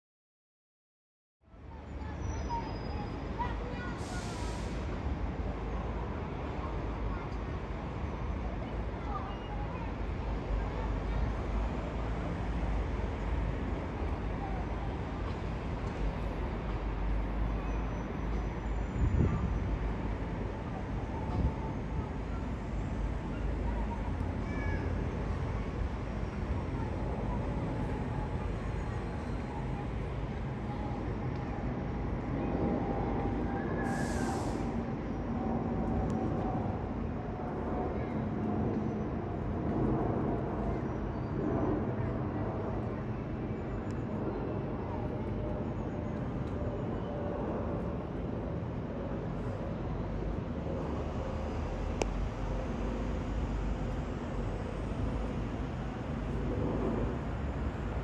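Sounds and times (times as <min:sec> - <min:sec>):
brief high hiss: 0:04.1 - 0:04.8, 0:33.8 - 0:34.8
jet airliner passing overhead: 0:16.2 - 0:58.0.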